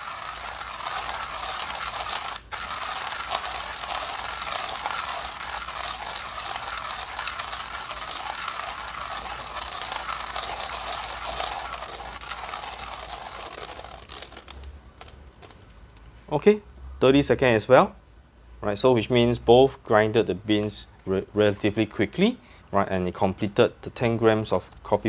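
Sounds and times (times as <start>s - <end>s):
hand coffee grinder crunching: 0.0s - 15.7s.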